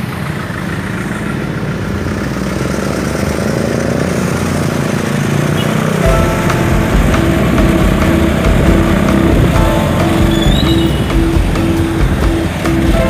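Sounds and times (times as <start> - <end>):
street traffic: 0.0 - 13.0
motorcycle engine running: 4.2 - 13.0.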